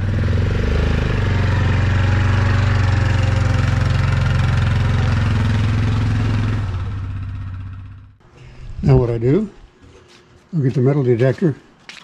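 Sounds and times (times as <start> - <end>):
atv engine running: 0.0 - 8.2.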